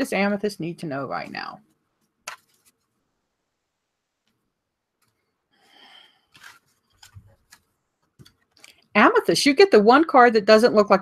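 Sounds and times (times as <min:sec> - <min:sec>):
cards rustling: 0:02.3 - 0:03.0, 0:06.2 - 0:08.8.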